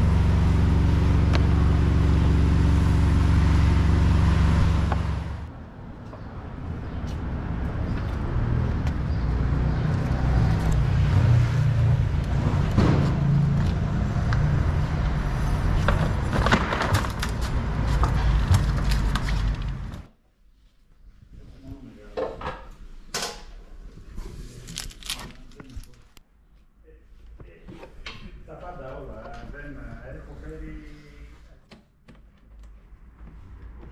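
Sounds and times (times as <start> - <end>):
vehicle engine rumbling: 0.0 - 20.1.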